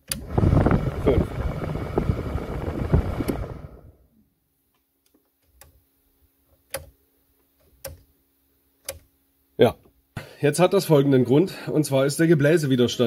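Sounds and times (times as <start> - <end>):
car blower fan running: 0.0 - 4.0.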